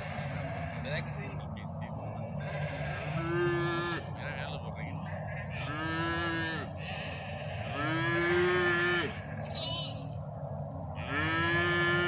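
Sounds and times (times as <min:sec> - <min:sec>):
calf mooing: 0:00.0 - 0:01.1, 0:02.4 - 0:04.2, 0:05.1 - 0:10.0, 0:11.0 - 0:12.0.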